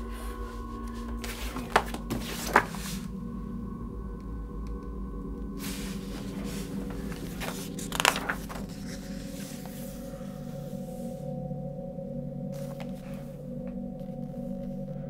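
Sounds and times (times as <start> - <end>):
low background music drone: 0.0 - 15.0
paper rustling: 0.1 - 3.1, 5.6 - 10.8
paper crinkle: 0.4 - 3.1, 5.6 - 10.2.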